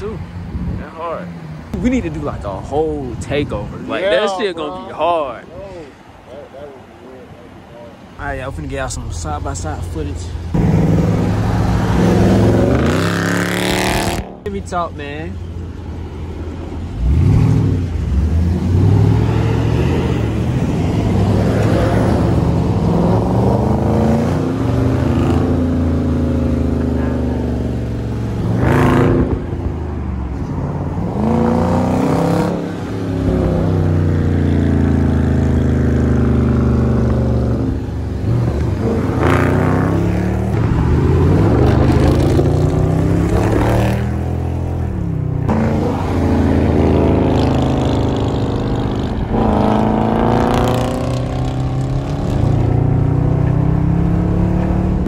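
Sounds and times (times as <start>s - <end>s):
car engine accelerating hard: 31.0s - 55.0s.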